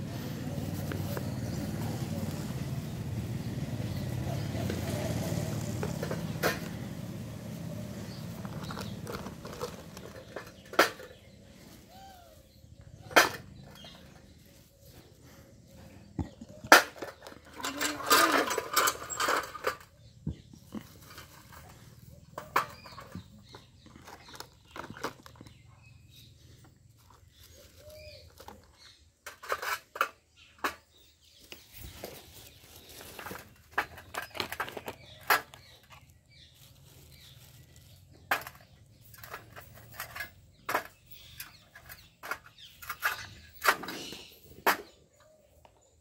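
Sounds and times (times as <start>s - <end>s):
stones clacking on plastic: 16.1s - 26.2s, 32.9s - 36.5s.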